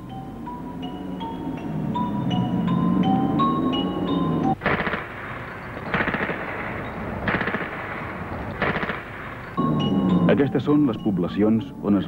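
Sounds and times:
machine-gun fire: 0:04.6 - 0:09.5.

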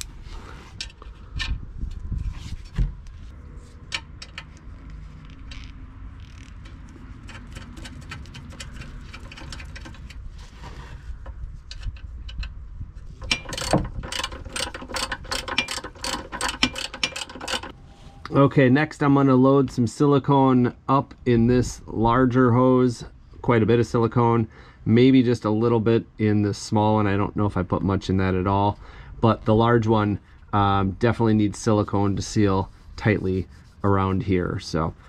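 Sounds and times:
bolts and washers clicking: 0:03.8 - 0:10.2, 0:11.2 - 0:17.8
ratchet wrench clicking: 0:13.2 - 0:17.7.

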